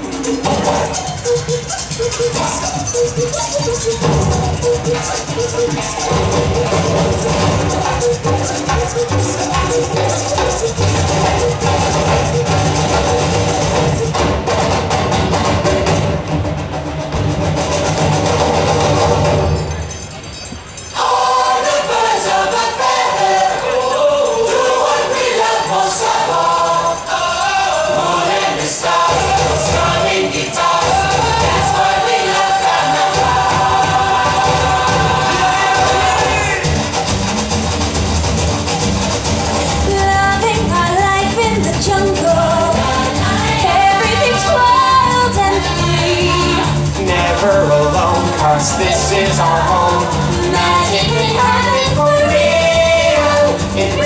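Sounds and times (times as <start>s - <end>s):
song over loudspeakers: 20.9s - 54.0s.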